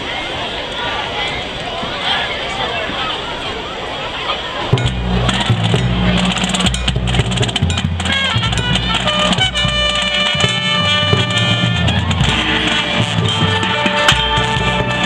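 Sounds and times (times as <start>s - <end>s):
drums: 4.7s - 15.0s
mallet percussion: 4.7s - 15.0s
brass chords: 4.8s - 15.0s
timpani: 4.8s - 15.0s.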